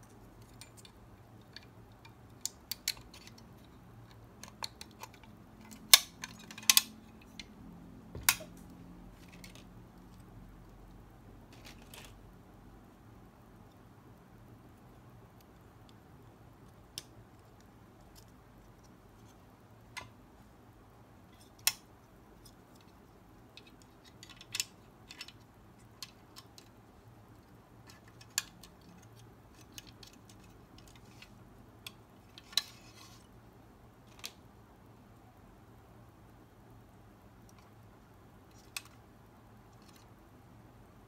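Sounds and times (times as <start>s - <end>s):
quiet room hum: 0.0s - 41.0s
plastic parts clicking: 0.1s - 7.5s, 21.4s - 33.2s.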